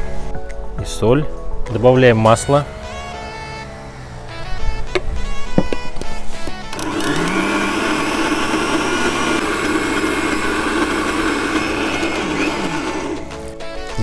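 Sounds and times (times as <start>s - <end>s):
blender running: 6.6s - 13.6s.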